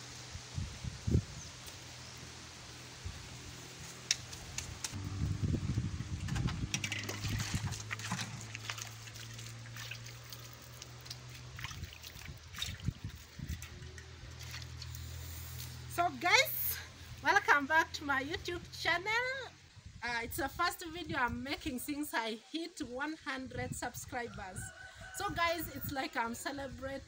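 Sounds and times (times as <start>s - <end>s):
water sloshing in metal basin: 6.1s - 15.0s.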